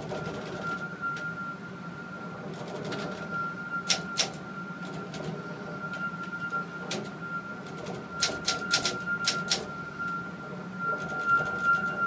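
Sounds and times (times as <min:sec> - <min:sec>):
steady high tone: 0:00.0 - 0:12.0
typewriter keys clacking: 0:08.2 - 0:09.6.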